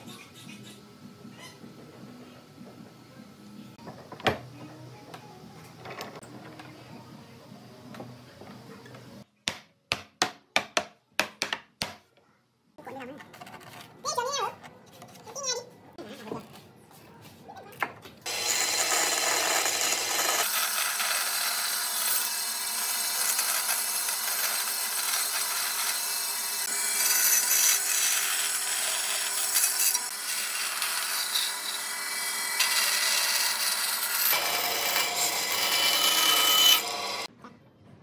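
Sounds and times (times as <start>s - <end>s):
power saw cutting wood: 18.2s - 37.3s.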